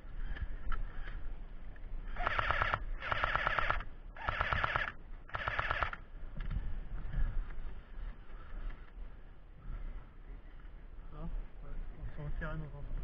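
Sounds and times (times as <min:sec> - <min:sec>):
airsoft gun full-auto bursts: 0:02.2 - 0:06.0.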